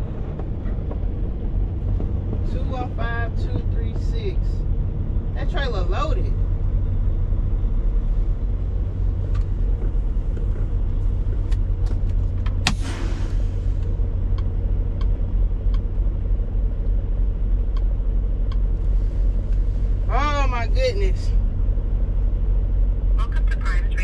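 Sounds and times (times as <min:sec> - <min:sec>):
diesel truck engine running: 0:00.0 - 0:24.0
air brake hiss: 0:12.7 - 0:13.9.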